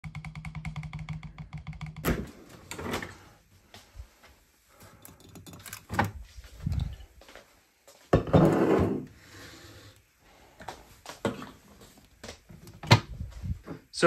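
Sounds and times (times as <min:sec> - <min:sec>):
rapid even tapping: 0:00.0 - 0:02.1.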